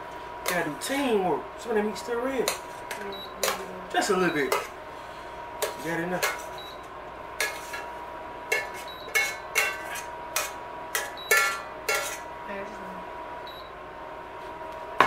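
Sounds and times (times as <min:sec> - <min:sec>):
metal utensil scraping frying pan: 0:04.3 - 0:04.8, 0:07.4 - 0:07.9, 0:08.5 - 0:12.3.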